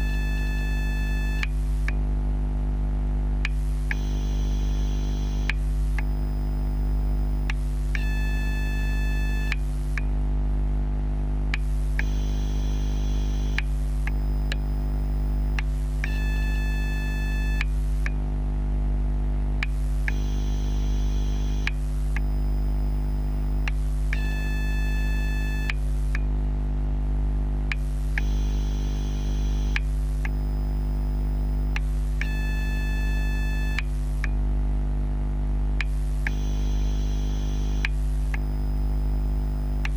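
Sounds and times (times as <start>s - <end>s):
faint electronic tone: 0.0s - 1.6s, 3.8s - 10.0s, 11.6s - 18.1s, 19.7s - 26.2s, 27.8s - 34.2s, 35.8s - 39.9s
high electronic whine: 0.0s - 1.6s, 3.5s - 10.0s, 11.6s - 18.1s, 19.7s - 26.2s, 27.8s - 34.2s, 35.9s - 39.9s
battery charger low hum: 0.0s - 10.2s, 11.1s - 34.5s, 35.8s - 39.9s.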